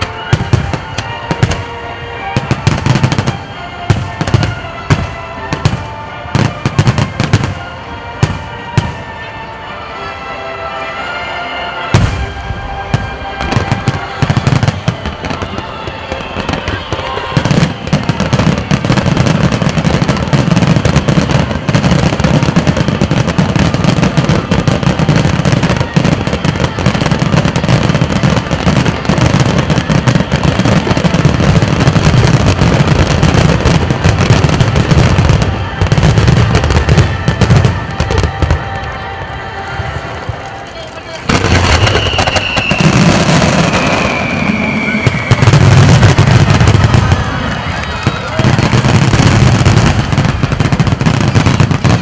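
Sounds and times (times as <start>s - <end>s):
firework bangs and crackling: 0.0s - 52.0s.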